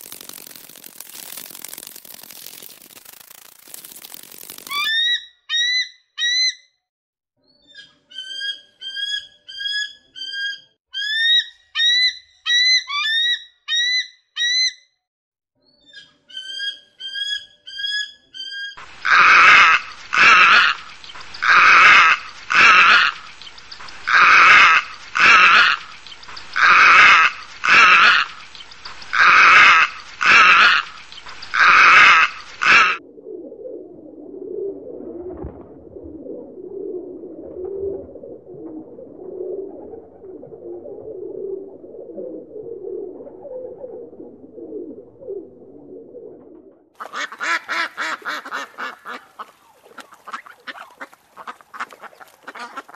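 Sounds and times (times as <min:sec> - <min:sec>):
harsh bird calls: 0:15.8 - 0:33.0.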